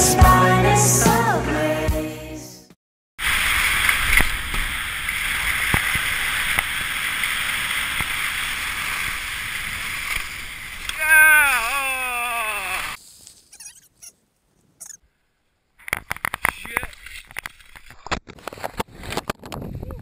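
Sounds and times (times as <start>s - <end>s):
wind and snow hissing: 3.2s - 13.6s
person groaning cry: 11.0s - 13.0s.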